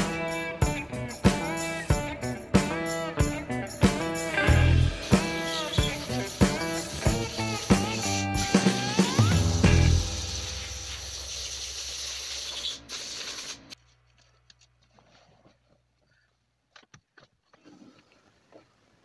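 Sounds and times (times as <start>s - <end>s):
brush scrubbing plastic: 5.0s - 9.4s.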